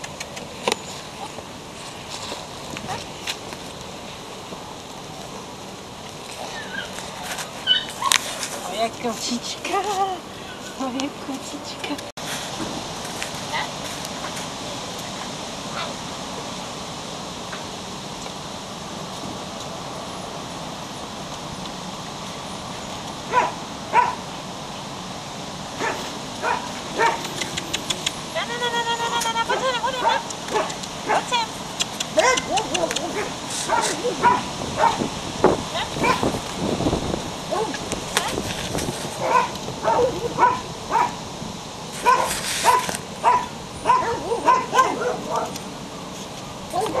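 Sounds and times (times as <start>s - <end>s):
puppy yipping: 6.4s - 7.0s, 7.6s - 8.3s, 29.0s - 31.2s, 32.2s - 35.0s, 39.2s - 41.1s, 42.0s - 45.5s.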